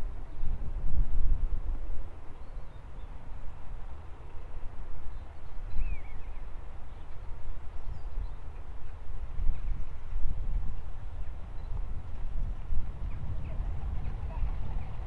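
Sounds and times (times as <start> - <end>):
wind buffeting microphone: 0.0 - 15.0
bird chirp: 2.3 - 3.6, 4.3 - 10.2, 11.1 - 12.1.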